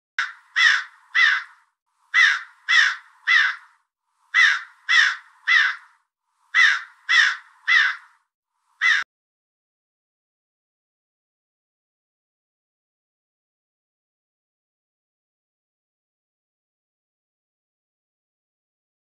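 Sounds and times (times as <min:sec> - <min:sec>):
crow cawing: 0:00.2 - 0:08.2, 0:08.8 - 0:09.1.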